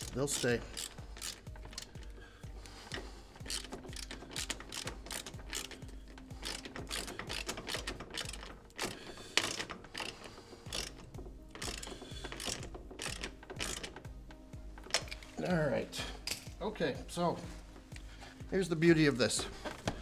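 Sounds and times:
hand ratchet clicking: 0.0s - 15.3s.

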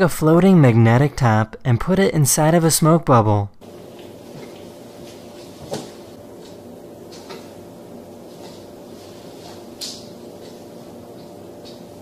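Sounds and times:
steady low hum: 3.5s - 12.0s.

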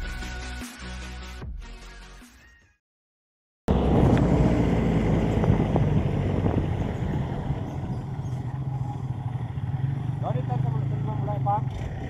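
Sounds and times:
vehicle engine drone: 3.7s - 12.0s.

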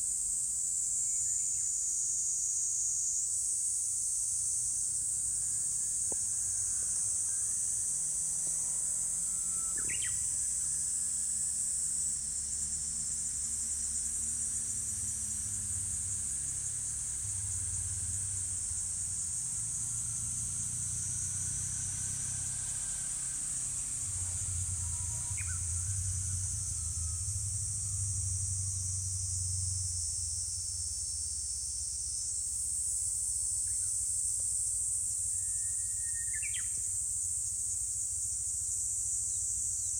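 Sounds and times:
bird chirping: 9.8s - 10.2s.

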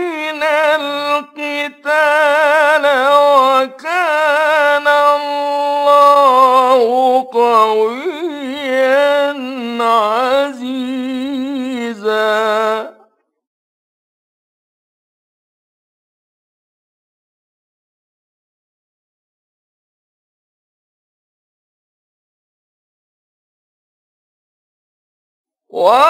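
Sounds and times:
man reciting melodically: 0.0s - 13.0s, 25.7s - 26.0s.

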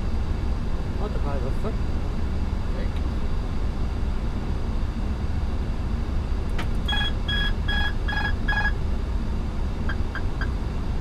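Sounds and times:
rumble of airflow and engines: 0.0s - 11.0s
short electronic beeps: 6.9s - 8.7s.

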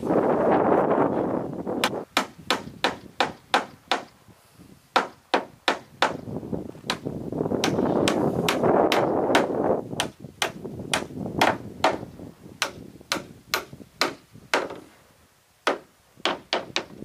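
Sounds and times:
hammer driving nails into wood: 1.8s - 4.2s, 4.9s - 6.2s, 7.6s - 12.0s, 12.6s - 14.9s, 15.6s - 17.0s.

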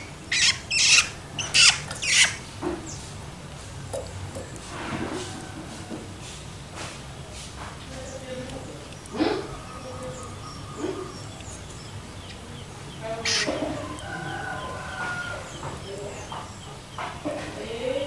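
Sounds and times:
young bird squeaky chirps: 0.0s - 3.0s, 8.8s - 15.6s.

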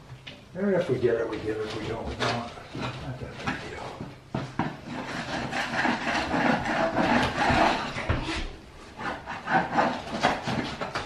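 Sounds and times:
floorboards scraped by hand: 4.4s - 11.0s.

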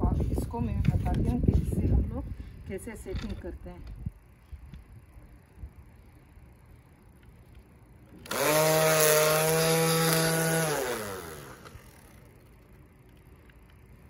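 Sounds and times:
string trimmer whining: 8.1s - 12.4s.

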